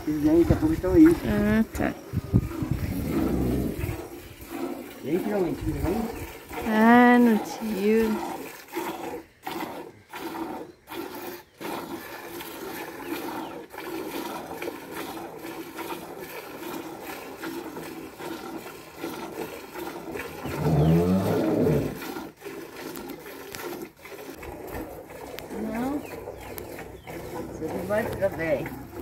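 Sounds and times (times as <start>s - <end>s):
cow mooing: 20.4s - 22.0s.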